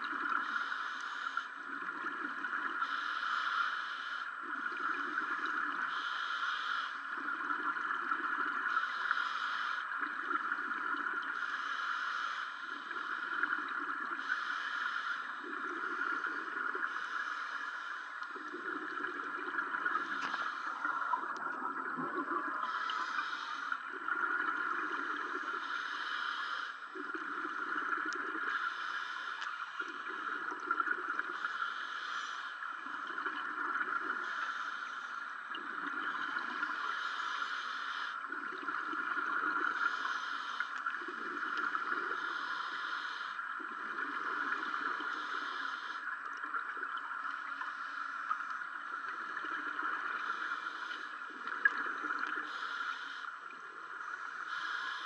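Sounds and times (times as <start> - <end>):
steady hiss: 0.0 - 55.0
regulator hiss on inhale: 0.1 - 55.0
bubbling gurgle on exhale: 18.2 - 25.7, 26.9 - 28.7, 29.8 - 31.4, 32.8 - 34.4, 35.5 - 36.9, 38.3 - 40.2, 48.3 - 52.6.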